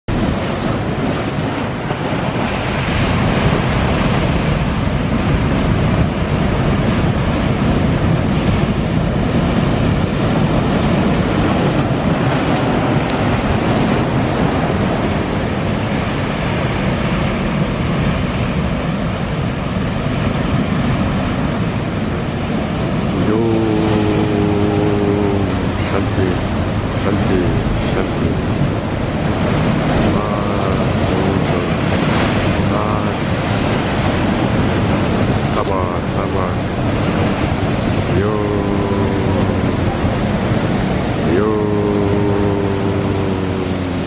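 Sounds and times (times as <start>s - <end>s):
waves breaking against rocks: 0.1s - 44.0s.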